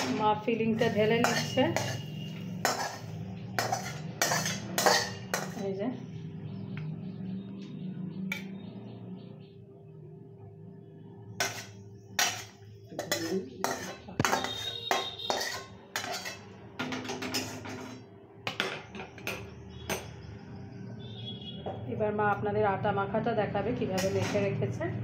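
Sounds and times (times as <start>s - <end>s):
metal spatula scraping steel plate: 0.8s - 5.6s, 11.4s - 18.0s, 24.0s - 24.5s.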